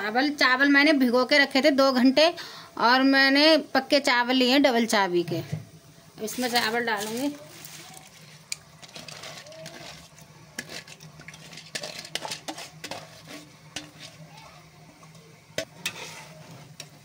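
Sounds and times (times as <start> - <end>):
rice pouring into boiling water: 6.2 - 17.0
clinks and scrapes on metal: 8.8 - 14.2, 15.6 - 17.0.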